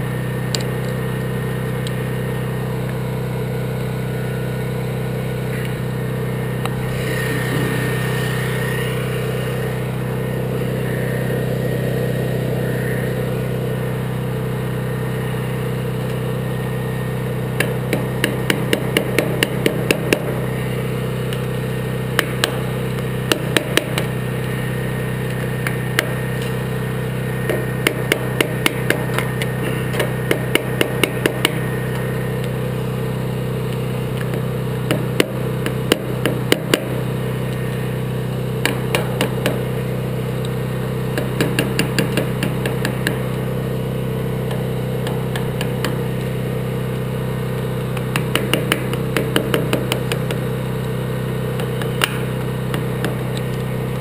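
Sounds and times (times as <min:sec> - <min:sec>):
generator engine humming: 0:00.0 - 0:54.0
hammer tapping steel punch: 0:17.6 - 0:20.4, 0:23.3 - 0:24.1, 0:27.5 - 0:32.0, 0:34.2 - 0:37.0, 0:38.6 - 0:39.6, 0:41.2 - 0:43.3, 0:44.5 - 0:46.3, 0:47.9 - 0:50.4, 0:51.6 - 0:53.4.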